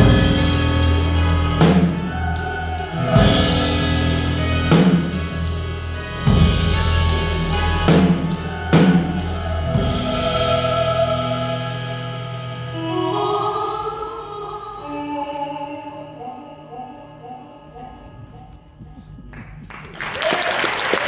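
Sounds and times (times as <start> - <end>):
drum and cymbal hits: 0.0 - 5.7
held bass: 0.0 - 13.1
keyboard and guitar chords: 0.0 - 13.8.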